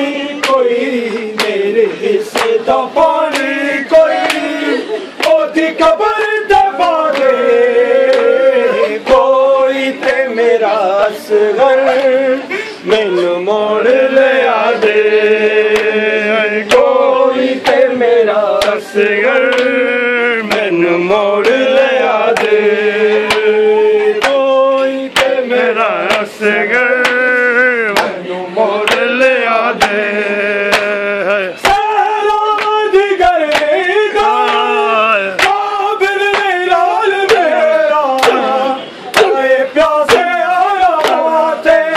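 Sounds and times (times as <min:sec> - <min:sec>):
men chanting a lament: 0:00.0 - 0:41.9
hands slapping chests: 0:35.4 - 0:35.6.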